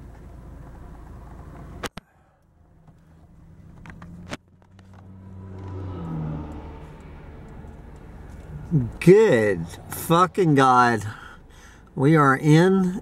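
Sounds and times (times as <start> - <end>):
quiet traffic: 0.0 - 13.0
diesel dump truck driving past: 4.9 - 10.1.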